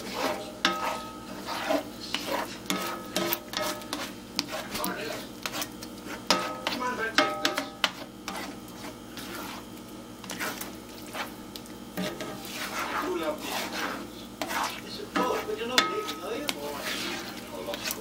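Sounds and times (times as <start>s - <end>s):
spatula scraping a skillet: 0.0s - 18.0s
spatula clinking against pan: 0.6s - 1.2s, 6.3s - 8.0s, 14.4s - 16.7s.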